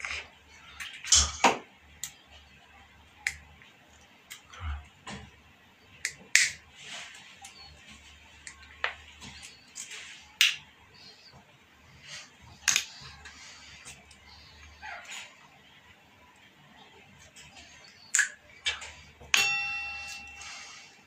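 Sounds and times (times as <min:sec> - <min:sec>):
rustling of wire and hands: 0:06.6 - 0:15.6.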